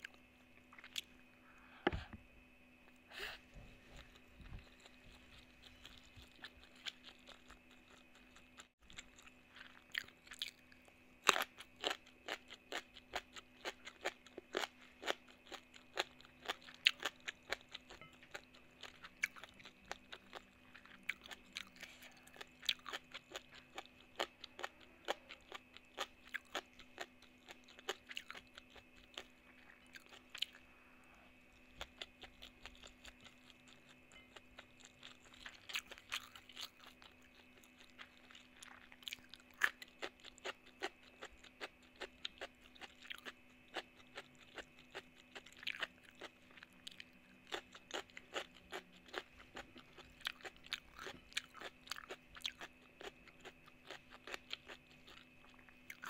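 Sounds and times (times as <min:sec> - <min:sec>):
faint steady hum: 0:00.0 - 0:56.0
food crunching: 0:03.9 - 0:30.7, 0:31.4 - 0:56.0.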